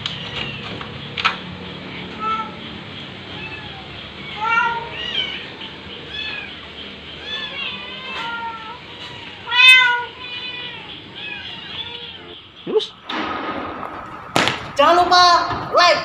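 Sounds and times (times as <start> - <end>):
kittens meowing: 0.0 - 1.0, 1.9 - 13.0.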